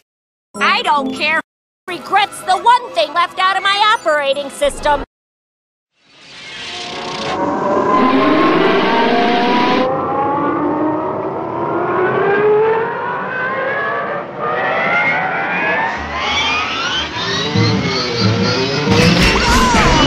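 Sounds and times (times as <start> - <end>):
rising mechanical whine: 6.1 - 12.6, 15.6 - 20.0.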